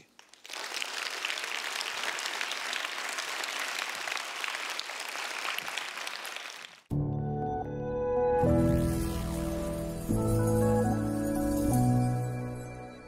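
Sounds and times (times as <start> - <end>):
audience applauding: 0.0 - 6.9
instrumental music: 6.9 - 13.0.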